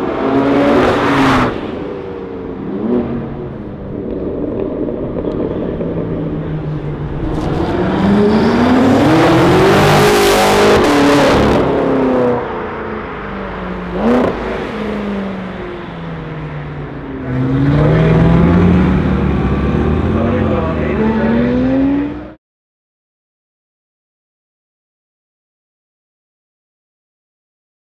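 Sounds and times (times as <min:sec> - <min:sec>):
car engine revving: 0:00.0 - 0:22.4
car engine accelerating past: 0:02.7 - 0:16.2, 0:16.9 - 0:22.4.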